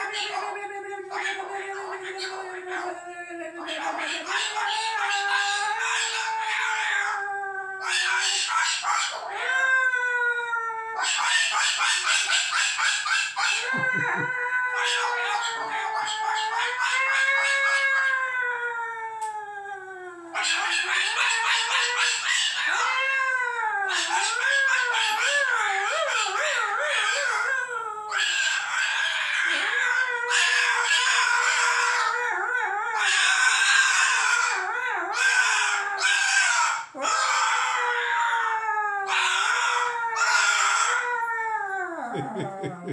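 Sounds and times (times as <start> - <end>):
cockatoo calling: 10.9 - 18.2.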